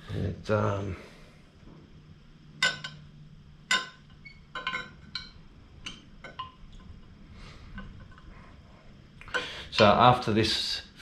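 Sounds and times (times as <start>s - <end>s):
glassy ring: 2.5s - 7.0s.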